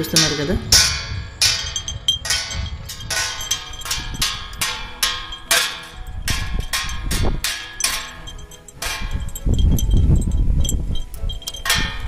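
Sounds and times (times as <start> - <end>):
washer clanging on metal plate: 0.0 - 9.4.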